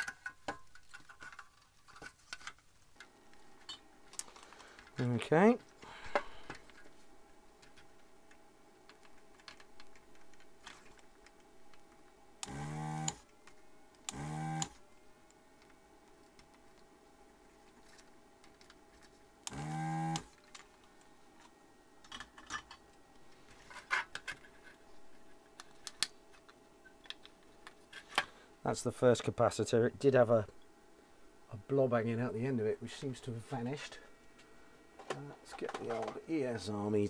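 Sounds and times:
desoldering pump whirring: 11.3s - 13.3s, 13.9s - 14.8s, 19.4s - 20.5s.

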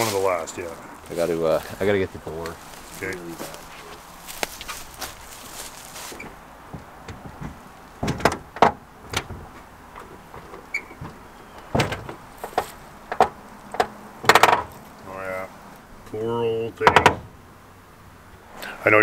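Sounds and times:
car door latch clunks and clicks: 7.0s - 14.8s, 16.8s - 17.4s.

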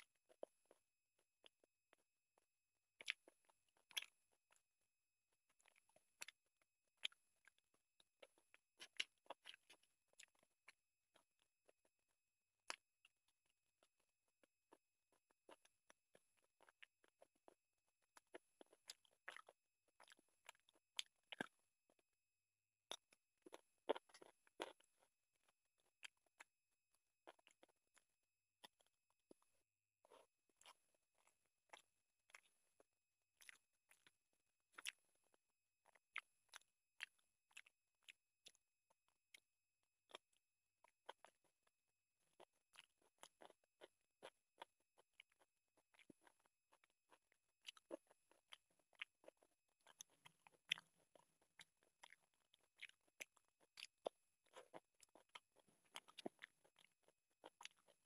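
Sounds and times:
wet chewing smacks: 42.4s - 58.0s.

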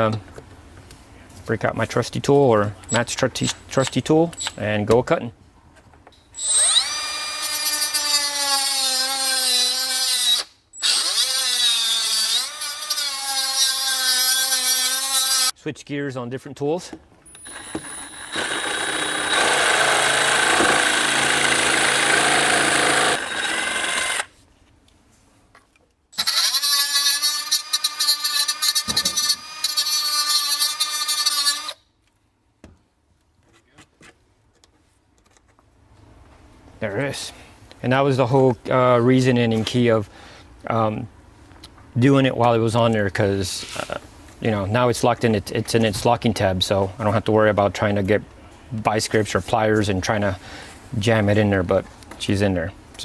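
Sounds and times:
cordless cut-off tool whining: 6.4s - 15.5s, 17.3s - 24.3s, 26.2s - 31.8s.

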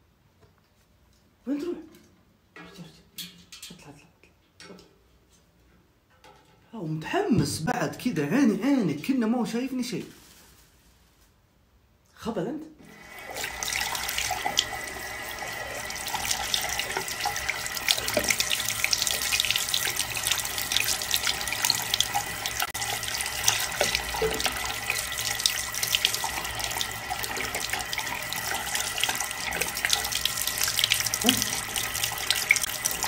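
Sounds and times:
tap water running into a sink: 12.9s - 33.0s.

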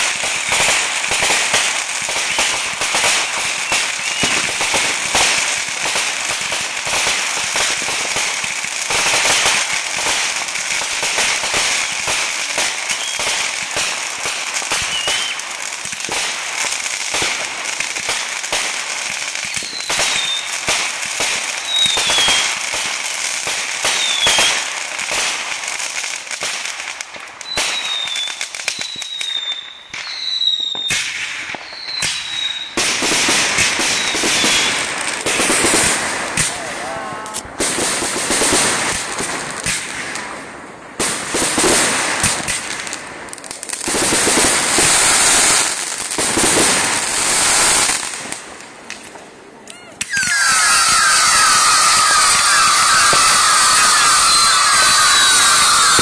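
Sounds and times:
firework shots popping: 0.0s - 56.0s
fountain firework hissing crackle: 0.0s - 56.0s
high falling whistles: 2.1s - 2.6s, 3.6s - 4.4s, 12.9s - 13.4s, 14.8s - 15.4s, 19.4s - 20.5s, 21.6s - 22.5s, 23.9s - 24.6s, 27.4s - 30.9s, 31.5s - 32.8s, 50.0s - 56.0s.

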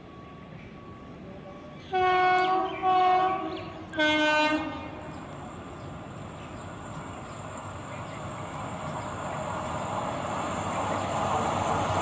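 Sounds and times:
train rumble: 0.0s - 12.0s
train horn blasts: 1.9s - 5.0s.

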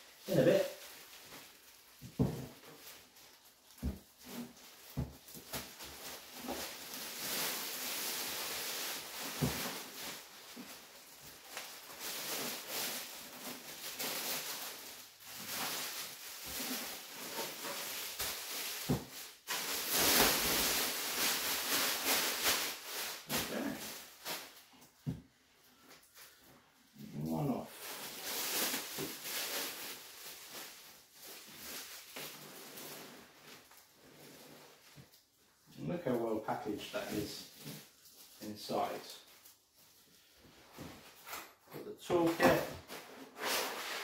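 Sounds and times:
plastic wrap crinkling: 0.0s - 24.9s, 27.5s - 35.3s.

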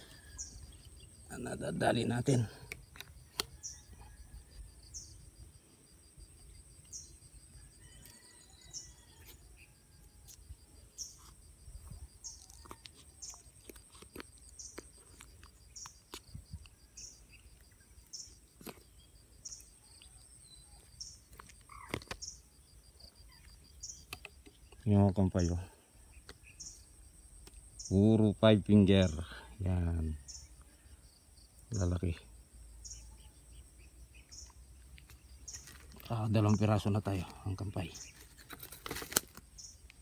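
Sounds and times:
insect fast ticking: 0.0s - 40.0s
insects buzzing: 0.0s - 40.0s
short high insect chirp: 3.3s - 13.6s, 39.4s - 39.9s.

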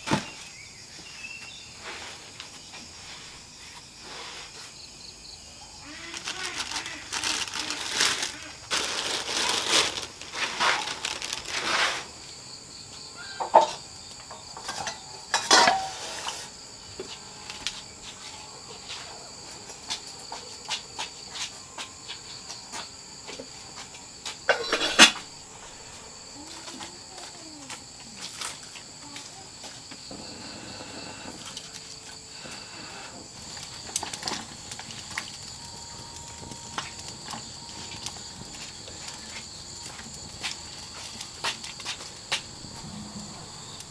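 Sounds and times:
crickets chirring: 0.0s - 43.9s
plastic bag crinkling: 5.8s - 12.1s, 33.4s - 43.9s.

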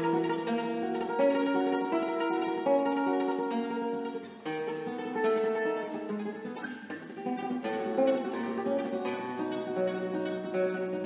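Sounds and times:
classical guitar tremolo melody: 0.0s - 11.0s.

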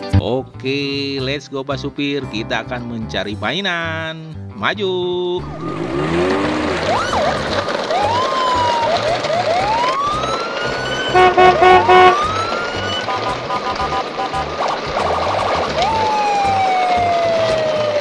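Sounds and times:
police siren whooping: 5.4s - 18.0s
short horn beeps: 11.2s - 12.3s.

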